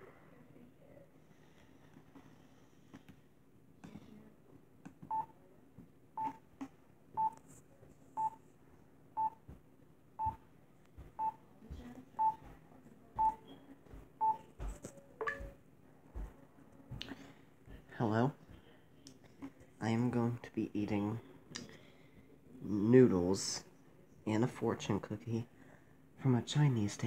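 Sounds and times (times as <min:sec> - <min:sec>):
short beeps: 0:15.2 - 0:15.6.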